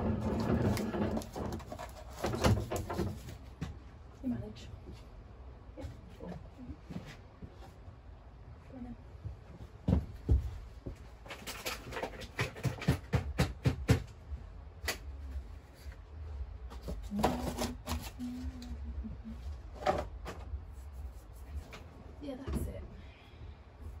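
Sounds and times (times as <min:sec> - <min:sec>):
plant pots and trays knocking: 0:11.5 - 0:14.2.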